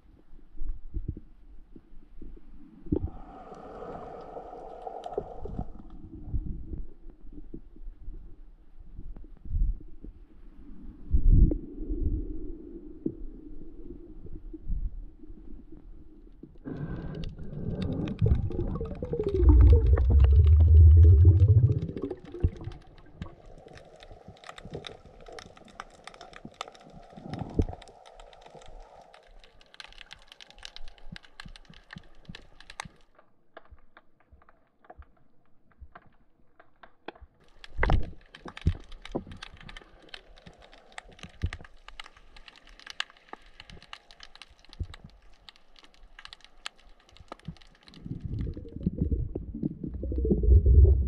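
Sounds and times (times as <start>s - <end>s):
underwater crackling: 2.9s - 6.1s, 16.6s - 33.0s, 37.4s - 51.0s.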